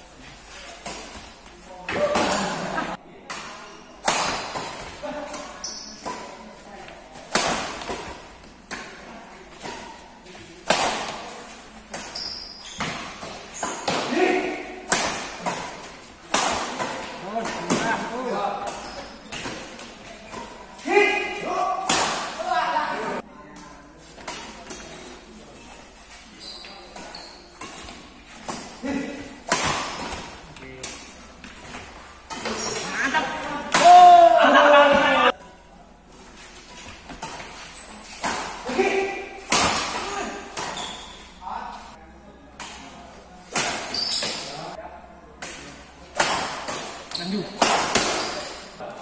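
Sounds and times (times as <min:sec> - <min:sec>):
rackets hitting shuttlecock: 0:03.3 - 0:06.4, 0:07.2 - 0:10.0, 0:10.6 - 0:11.3, 0:11.9 - 0:20.6, 0:21.4 - 0:22.4, 0:26.9 - 0:34.3, 0:37.0 - 0:41.3, 0:42.6 - 0:44.6, 0:45.4 - 0:48.7
racket striking shuttlecock: 0:29.4 - 0:31.0, 0:47.6 - 0:48.4.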